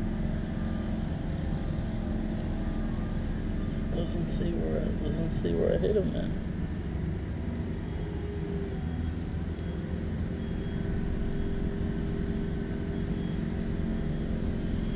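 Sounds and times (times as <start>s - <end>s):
distant motor drone: 0.0s - 14.9s.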